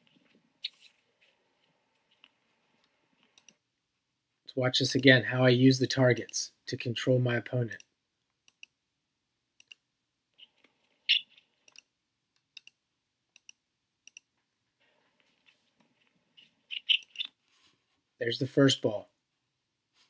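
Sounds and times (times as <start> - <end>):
computer mouse clicks: 3.2 - 3.6, 8.5 - 8.8, 9.6 - 9.8, 11.6 - 12.8, 13.4 - 14.3, 16.9 - 17.3.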